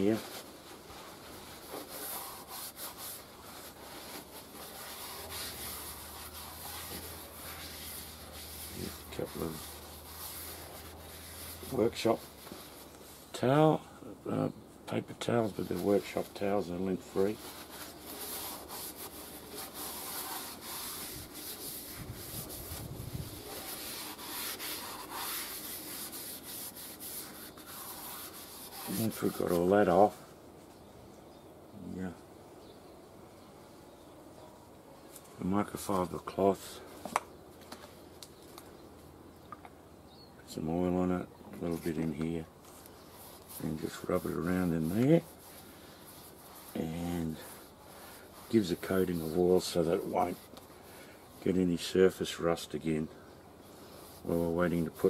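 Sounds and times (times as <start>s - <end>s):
towel wiping inside cylinder: 0.0s - 12.9s, 15.4s - 30.0s, 43.1s - 50.6s.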